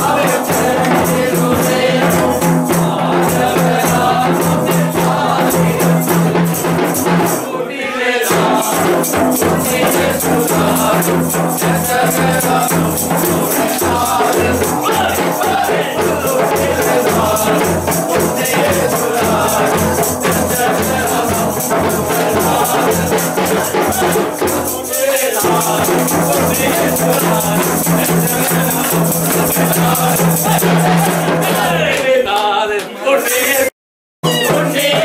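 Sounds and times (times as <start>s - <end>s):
group singing a carol: 0.0s - 33.7s, 34.3s - 35.0s
shaken percussion: 0.0s - 35.0s.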